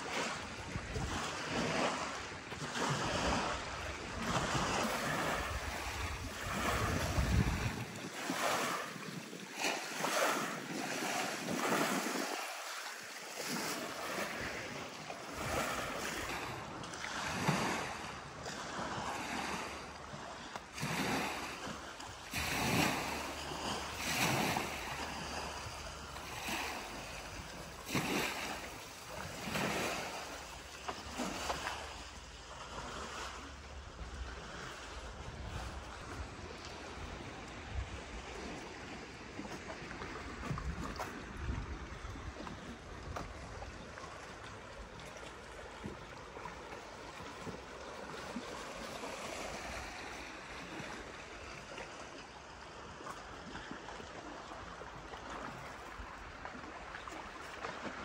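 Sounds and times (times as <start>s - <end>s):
wind rumbling on microphone: 0.0s - 12.6s, 32.6s - 46.4s
waves washing on pebbly shore: 0.0s - 41.8s, 45.9s - 51.8s.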